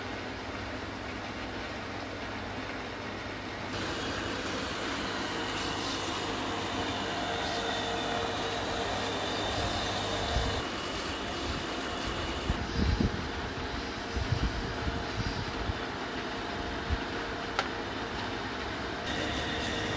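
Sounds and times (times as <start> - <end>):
electric motor whine: 3.8 - 15.6, 19.1 - 19.9
sandpaper sanding hiss: 3.8 - 15.6.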